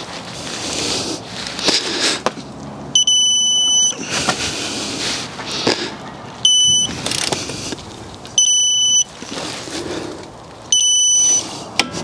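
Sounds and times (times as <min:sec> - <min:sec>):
torque wrench high beeps: 0:03.0 - 0:04.0, 0:06.4 - 0:06.9, 0:08.4 - 0:09.1, 0:10.7 - 0:11.4.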